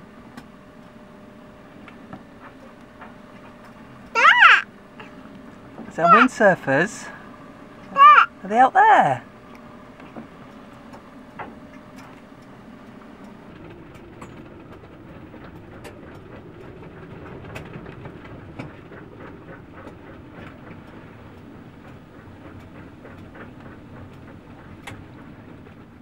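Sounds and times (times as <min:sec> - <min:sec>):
strong wind rumble: 0:13.3 - 0:25.8.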